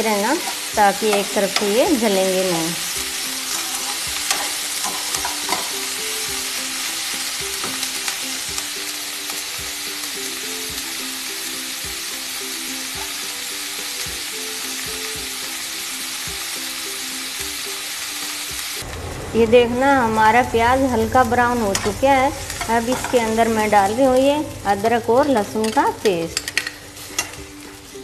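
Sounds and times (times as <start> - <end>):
onions sizzling in hot oil: 0.0 - 28.0
spatula scraping a pan: 0.4 - 1.7, 3.4 - 5.9.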